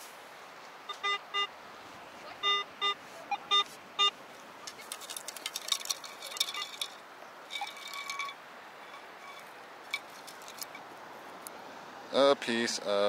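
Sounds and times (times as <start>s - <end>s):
metal detector beeping: 0.9s - 1.5s, 2.4s - 4.2s.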